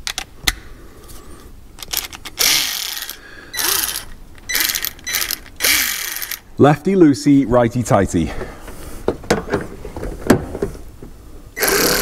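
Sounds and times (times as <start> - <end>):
ratchet wrench clicking: 1.8 - 6.4, 11.6 - 12.0
ratchet wrench ratcheting: 1.8 - 6.4, 11.6 - 12.0.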